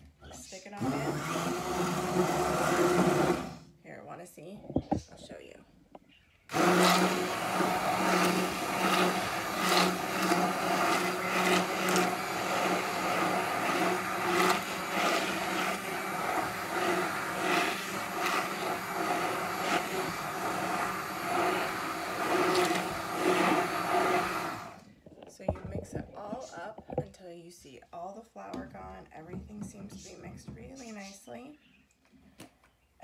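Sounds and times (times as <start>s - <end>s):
immersion blender motor hum: 0.8s - 3.6s, 6.5s - 24.8s.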